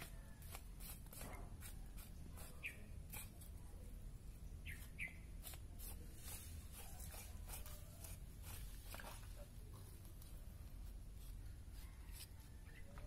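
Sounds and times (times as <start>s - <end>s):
soft scrapes of skinning: 4.7s - 13.0s.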